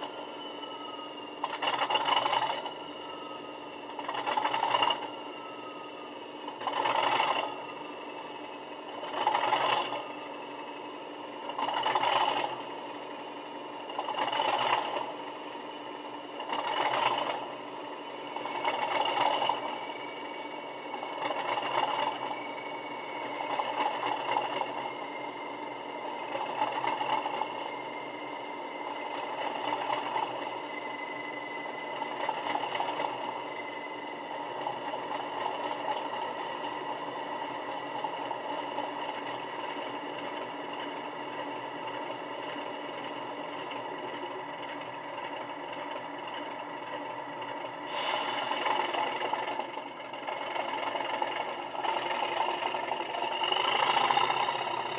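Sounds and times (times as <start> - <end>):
diesel engine surging from small speaker: 0.0 - 54.9
thin steady whistle: 0.0 - 54.9.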